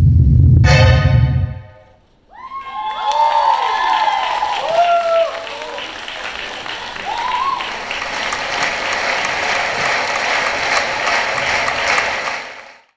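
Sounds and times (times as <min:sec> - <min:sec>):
audience applauding: 0:02.4 - 0:12.9.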